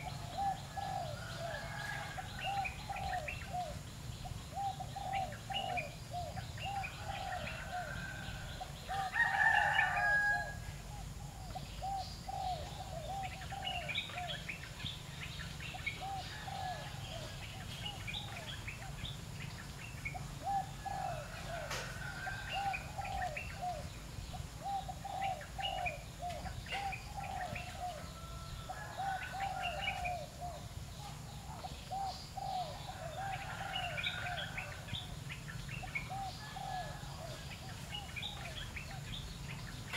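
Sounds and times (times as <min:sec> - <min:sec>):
birds calling and chirping: 0:00.0 - 0:39.9
rooster crowing: 0:00.3 - 0:03.2, 0:06.6 - 0:10.7, 0:16.0 - 0:17.4, 0:20.4 - 0:23.4, 0:27.3 - 0:30.5, 0:32.8 - 0:35.0, 0:36.1 - 0:37.7.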